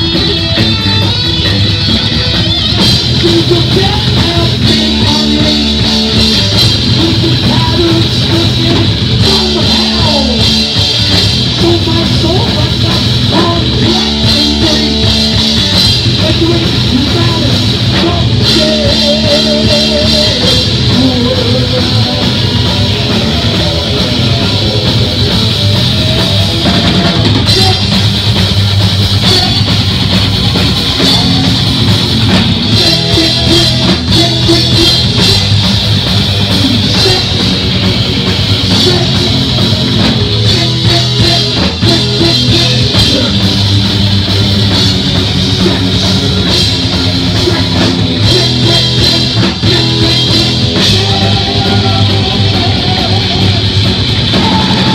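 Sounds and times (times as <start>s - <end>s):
bass guitar: 0.0s - 54.9s
distorted electric guitar: 0.0s - 54.9s
drum kit with cymbals: 0.0s - 54.9s.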